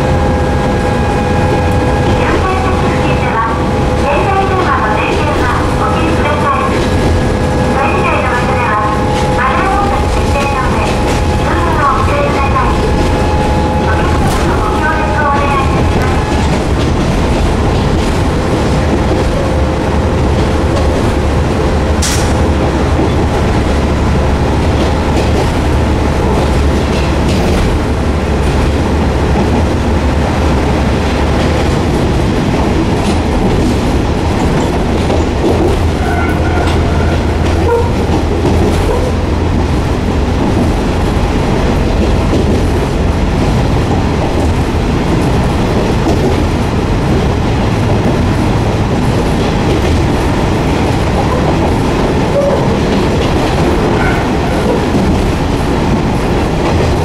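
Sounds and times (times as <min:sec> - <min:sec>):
railcar engine drone: 0:00.0 - 0:57.0
wheel and rail noise: 0:00.0 - 0:57.0
sharp clank: 0:22.0 - 0:22.4.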